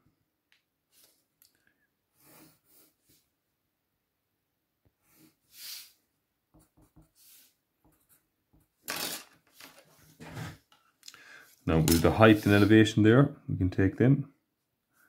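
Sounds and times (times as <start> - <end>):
pencil drawing lines: 5.0 - 9.2, 11.7 - 12.8.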